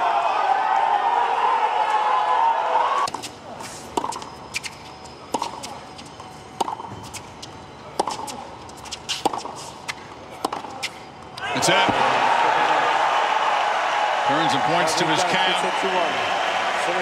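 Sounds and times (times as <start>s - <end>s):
loud crowd noise: 0.0s - 3.1s, 11.4s - 17.0s
tennis ball bouncing on court: 3.9s - 7.3s, 7.9s - 11.0s.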